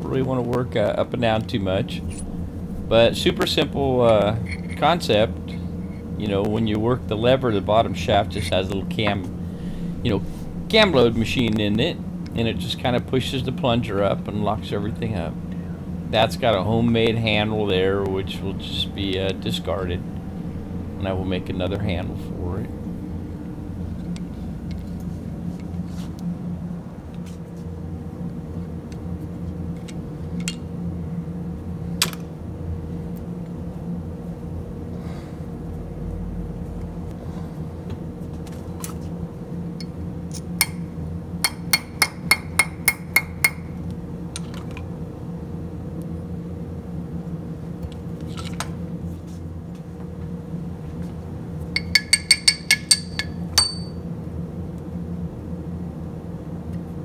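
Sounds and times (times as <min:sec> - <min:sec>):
steady low hum: 0:00.0 - 0:57.0
hammer tapping on steel: 0:41.5 - 0:43.7, 0:51.8 - 0:54.0
tools clinking: 0:51.8 - 0:54.0.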